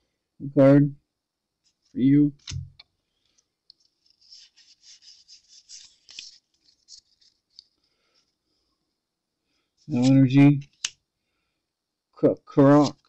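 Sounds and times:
cards sliding against each other: 3.8s - 7.8s, 9.8s - 11.0s, 12.7s - 13.0s.

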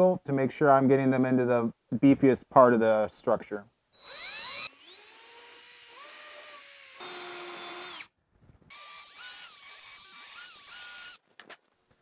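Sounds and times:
cordless drill motor whine: 4.0s - 8.1s, 8.7s - 11.2s.

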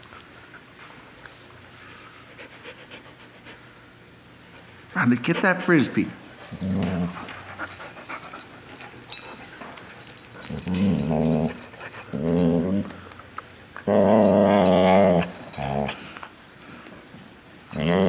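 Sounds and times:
dogs growling: 6.2s - 13.2s, 13.8s - 16.3s, 17.7s - 18.0s.

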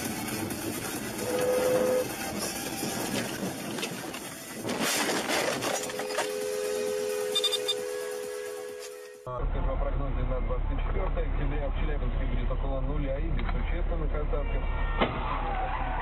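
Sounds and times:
road traffic noise: 0.0s - 16.0s
car horn: 1.2s - 2.3s, 5.7s - 9.3s
two-tone horn blast: 1.2s - 2.6s, 5.6s - 9.4s.

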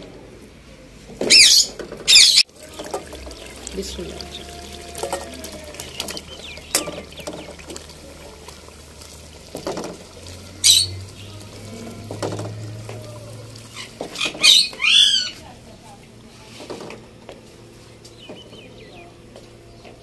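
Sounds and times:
sauce bubbling: 2.4s - 15.2s.

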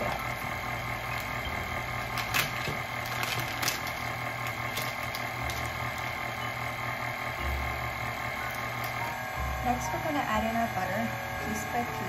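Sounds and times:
stand mixer motor humming: 0.0s - 12.0s.

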